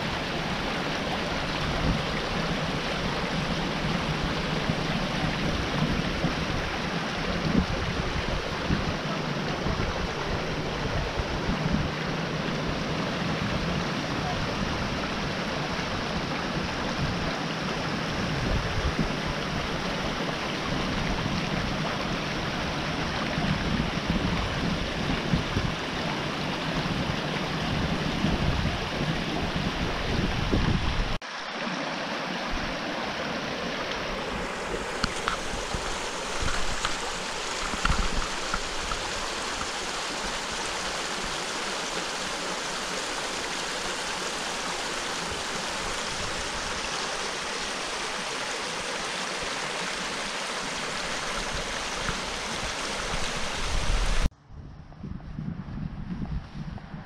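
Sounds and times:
brook babbling over stones: 0:00.0 - 0:54.3
gusty low rumble: 0:53.7 - 0:57.0.

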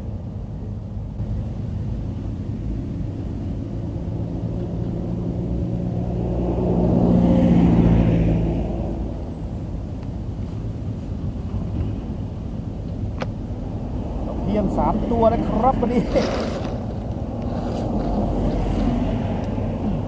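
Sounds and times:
wind rumble on microphone: 0:00.0 - 0:20.0
motor engine passing by: 0:03.0 - 0:09.8, 0:13.8 - 0:20.0.

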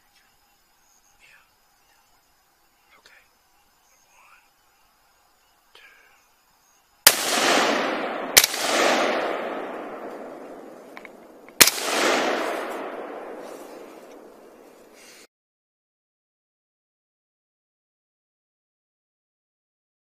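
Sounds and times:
rifle shots with echo: 0:07.0 - 0:15.0.

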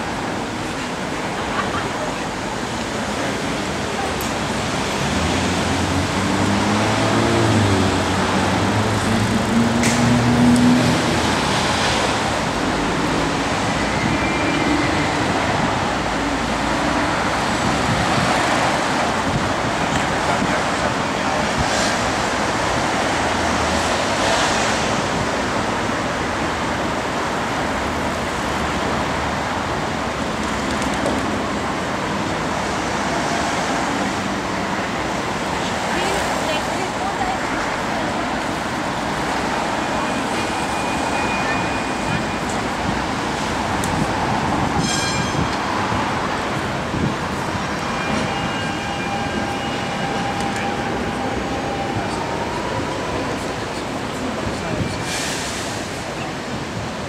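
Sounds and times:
people's voices: 0:00.0 - 0:26.3, 0:30.2 - 0:44.8, 0:45.4 - 0:57.0
road traffic noise: 0:00.0 - 0:57.0
vehicles passing: 0:00.0 - 0:57.0.

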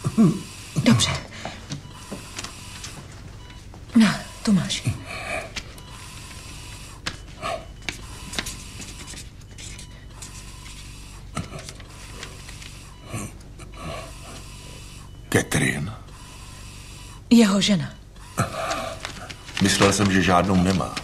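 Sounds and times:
person breathing with effort: 0:04.9 - 0:08.4, 0:11.4 - 0:15.2, 0:18.2 - 0:19.4.

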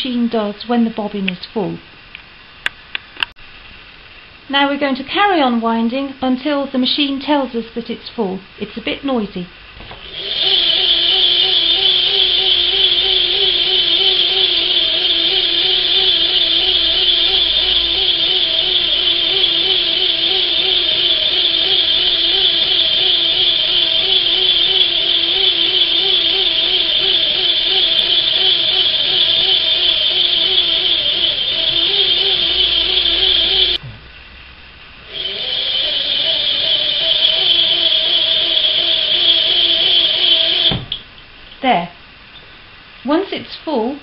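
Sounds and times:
hand-crank sewing machine whirring: 0:09.9 - 0:33.8, 0:35.1 - 0:40.8.

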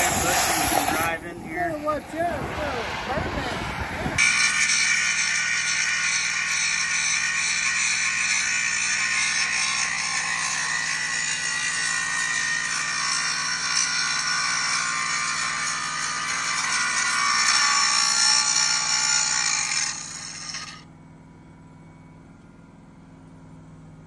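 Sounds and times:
angle grinder grinding steel: 0:00.0 - 0:02.4, 0:04.2 - 0:20.8.

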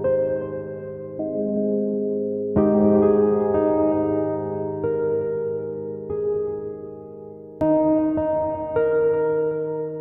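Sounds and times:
ambient piano chords: 0:00.0 - 0:10.0.

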